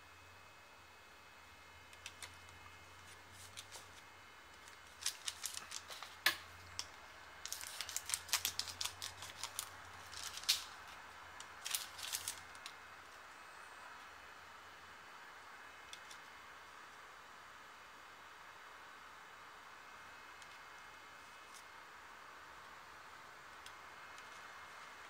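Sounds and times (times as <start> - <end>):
plastic wrapping crinkling: 2.0 - 4.0, 4.6 - 12.8.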